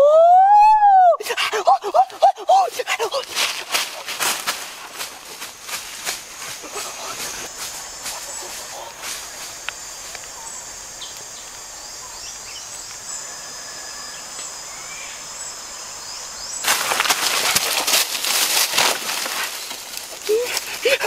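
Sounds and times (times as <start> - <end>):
insect drone: 0.0 - 21.0
dry sticks and leaves crackling: 1.5 - 10.4, 16.6 - 21.0.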